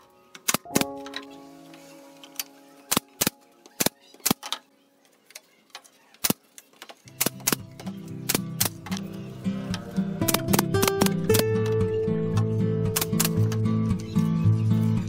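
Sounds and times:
acoustic guitar music: 0:00.6 - 0:04.1, 0:07.4 - 0:15.0.

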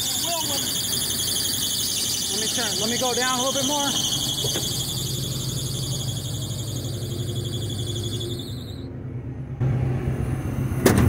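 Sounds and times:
car warning buzzer: 0:00.0 - 0:08.8
steady low hum: 0:00.0 - 0:10.6.

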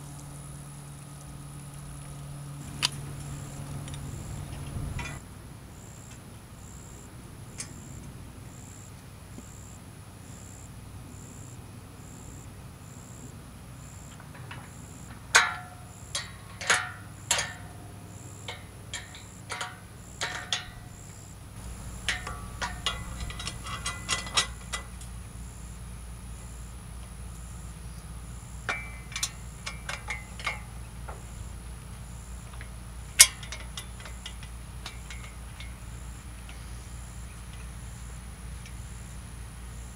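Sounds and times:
low steady hum: 0:00.0 - 0:39.9
metal parts clicking and knocking: 0:03.9 - 0:05.2, 0:14.3 - 0:25.1, 0:28.6 - 0:31.6, 0:32.2 - 0:38.8.

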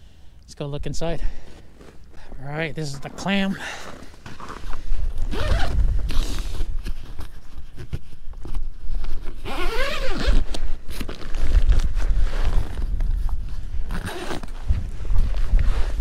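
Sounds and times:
fabric zipper unzipping: 0:05.2 - 0:06.5, 0:09.4 - 0:10.5, 0:13.9 - 0:14.7.

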